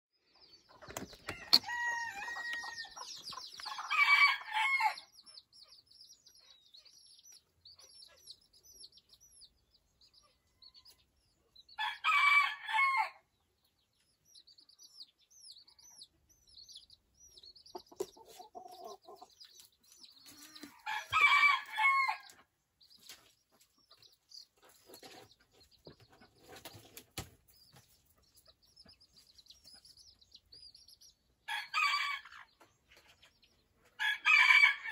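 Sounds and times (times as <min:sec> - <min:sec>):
chicks peeping: 0:00.2 - 0:34.9
rooster crowing: 0:01.3 - 0:03.0, 0:03.7 - 0:05.0, 0:11.8 - 0:13.2, 0:20.7 - 0:22.3, 0:31.5 - 0:32.3, 0:34.0 - 0:34.9.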